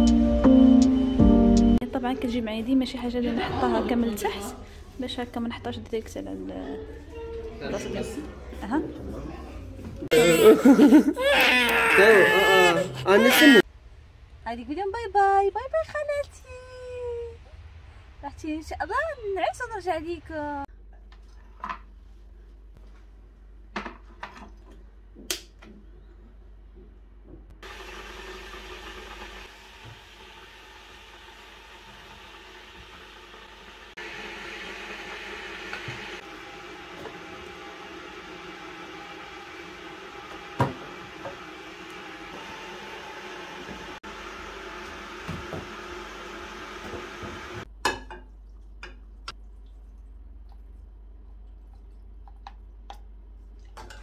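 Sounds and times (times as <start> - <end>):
kettle heating hiss: 27.6 - 47.7.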